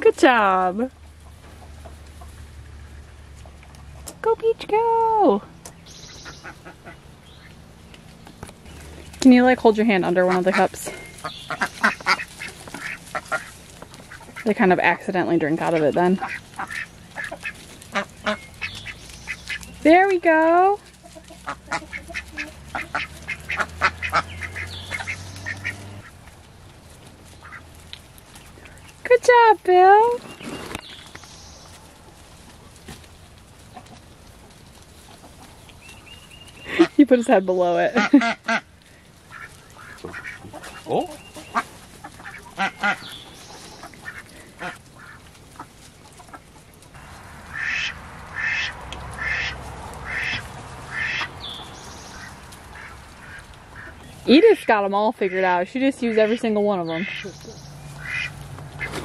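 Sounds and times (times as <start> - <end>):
ducks quacking: 6.0 - 7.6, 8.8 - 26.2, 27.3 - 27.8, 35.0 - 59.0.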